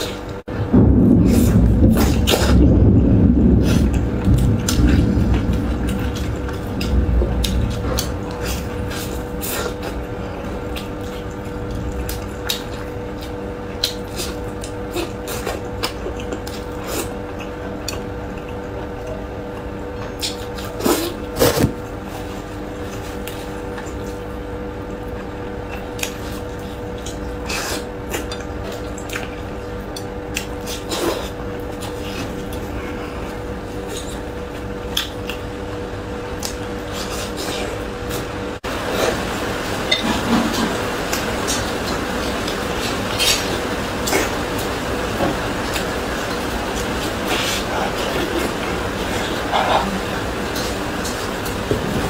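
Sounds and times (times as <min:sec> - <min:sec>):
steady low hum: 0:00.0 - 0:52.0
wet chewing sounds: 0:03.6 - 0:51.7.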